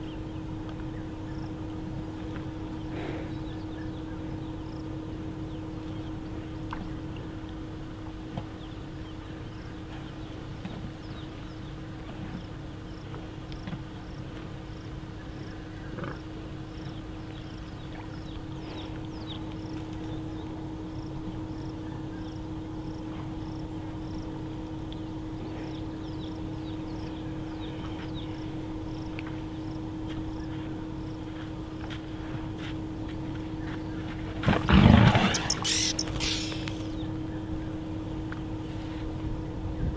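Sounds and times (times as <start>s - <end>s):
steady low hum: 0.0s - 39.9s
birds chirping: 34.8s - 38.3s.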